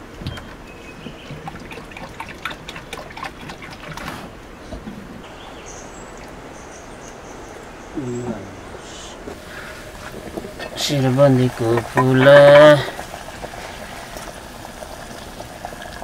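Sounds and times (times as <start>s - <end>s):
water pouring into a metal pan: 9.7s - 16.0s.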